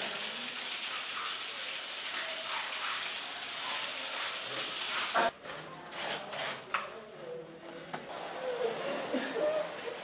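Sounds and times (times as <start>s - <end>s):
tap water running into bucket: 0.0s - 5.3s.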